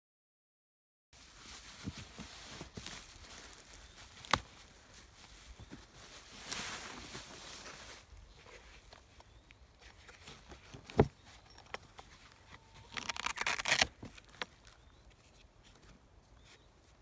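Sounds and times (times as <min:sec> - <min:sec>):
fabric scraping rustle: 0:04.8 - 0:08.8.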